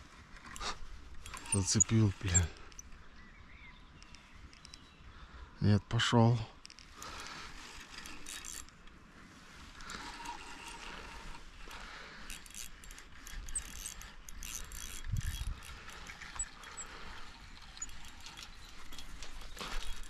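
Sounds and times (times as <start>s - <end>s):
fishing reel ticking and whirring: 0.6s - 2.9s, 7.0s - 8.8s, 9.8s - 20.0s.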